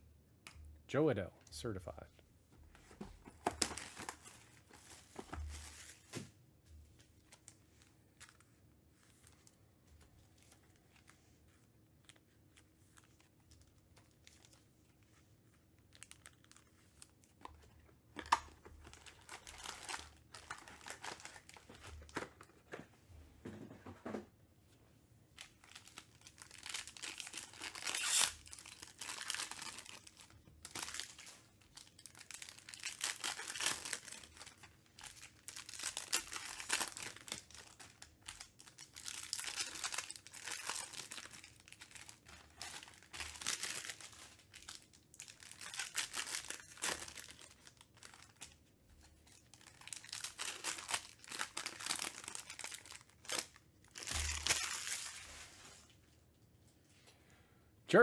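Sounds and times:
foil pack tearing and crinkling: 18.2s - 22.2s, 25.4s - 48.5s, 49.3s - 55.4s.

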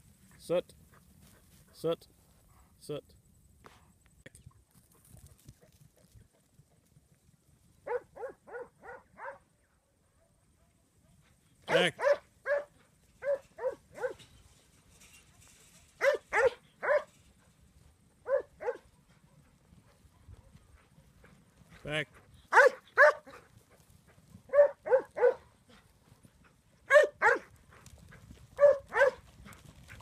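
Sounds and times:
dog barking: 7.8s - 9.5s, 11.7s - 14.2s, 16.0s - 17.1s, 18.2s - 19.4s, 22.5s - 23.4s, 24.5s - 25.5s, 26.9s - 27.5s, 28.6s - 29.2s.

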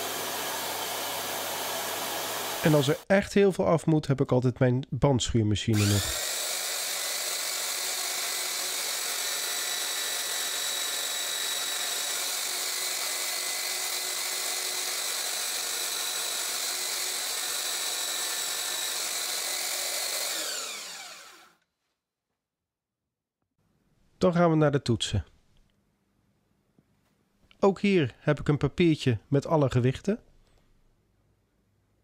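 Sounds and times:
belt sander whining: 0.0s - 3.0s, 5.8s - 21.6s.

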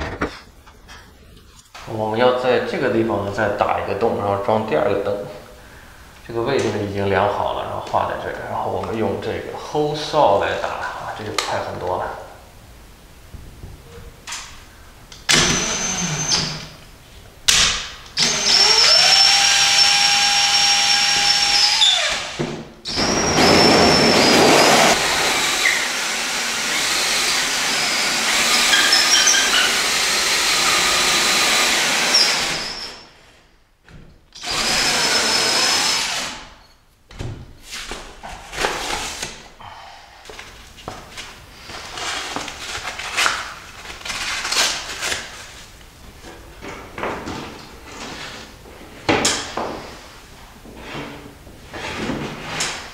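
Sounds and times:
cordless drill motor whine: 15.4s - 16.4s, 18.2s - 33.0s
hole saw grinding through drywall: 18.2s - 33.1s.

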